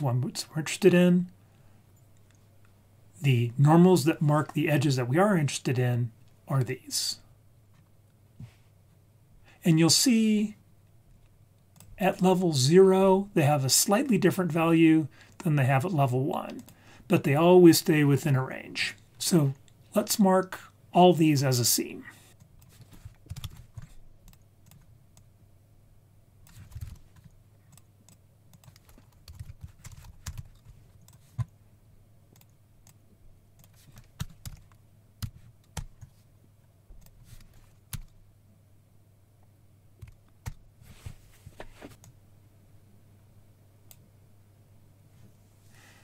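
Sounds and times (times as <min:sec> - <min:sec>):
faint low hum: 0:00.0 - 0:46.0
keyboard typing: 0:22.5 - 0:25.3, 0:26.4 - 0:31.6, 0:33.6 - 0:36.2, 0:37.0 - 0:38.2.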